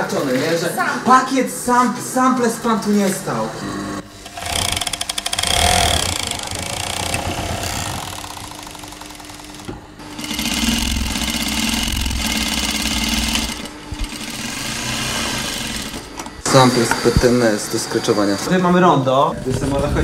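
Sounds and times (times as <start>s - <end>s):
sewing machine stitching: 4.2s - 16.1s.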